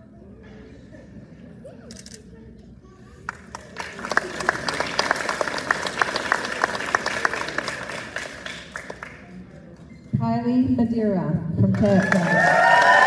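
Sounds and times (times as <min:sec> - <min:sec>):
audience applauding: 0:03.3 - 0:09.4, 0:11.9 - 0:13.0.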